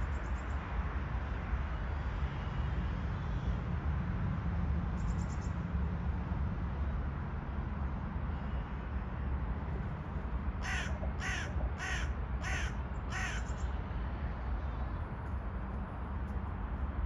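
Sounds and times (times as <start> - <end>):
crow cawing: 10.6 - 13.6.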